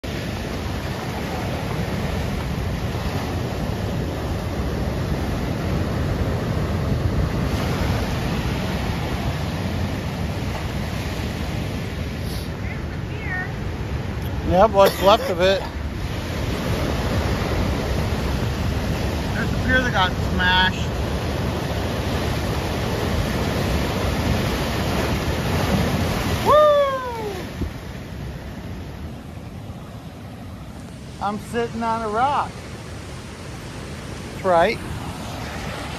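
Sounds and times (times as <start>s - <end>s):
surf breaking on rocky shore: 0.0s - 35.9s
wind buffeting microphone: 12.8s - 31.2s
person shouting whoo: 26.4s - 27.5s.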